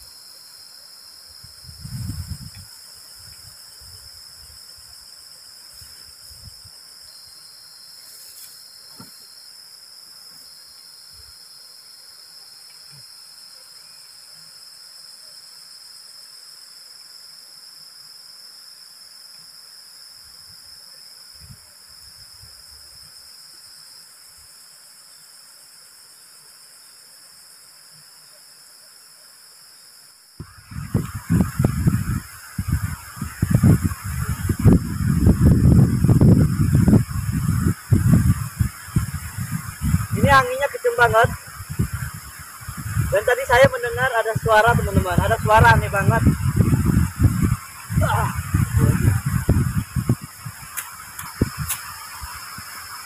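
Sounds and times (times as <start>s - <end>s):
crickets and insects chorus: 0.0s - 53.0s
wind buffeting microphone: 1.5s - 4.5s, 30.4s - 52.9s.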